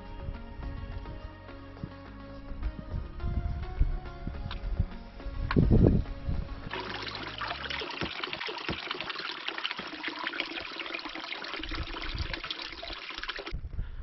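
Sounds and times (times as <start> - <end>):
water splashing into wooden trough: 6.7 - 13.5.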